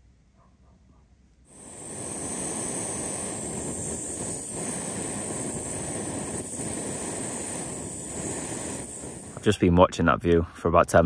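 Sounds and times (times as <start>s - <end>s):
gas stove burner hissing: 1.5s - 9.7s.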